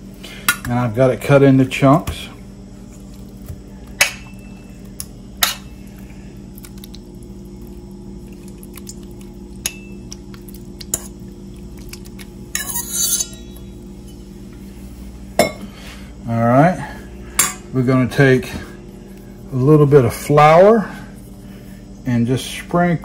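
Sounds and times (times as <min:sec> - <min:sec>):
steady low hum: 0:00.0 - 0:23.0
fork clinking on metal bowls: 0:09.6 - 0:10.2, 0:12.5 - 0:14.2.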